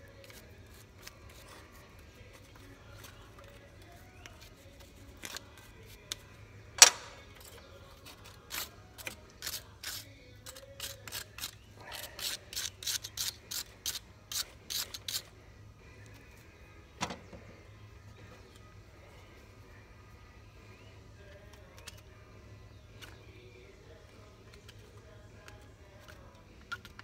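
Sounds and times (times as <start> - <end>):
wire brush scrubbing metal: 6.8 - 15.4.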